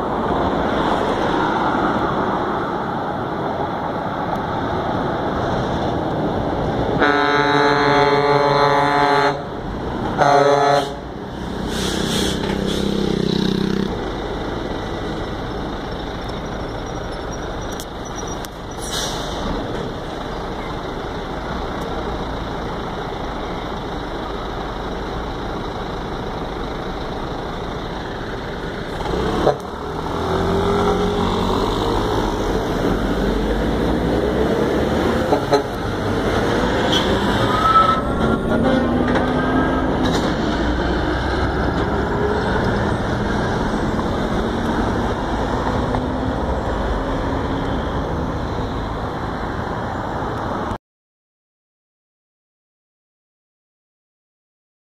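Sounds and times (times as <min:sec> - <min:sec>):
truck air horn: 0:07.0 - 0:13.0, 0:29.3 - 0:29.7, 0:35.2 - 0:35.8, 0:36.8 - 0:39.7
diesel truck engine running: 0:08.7 - 0:50.3.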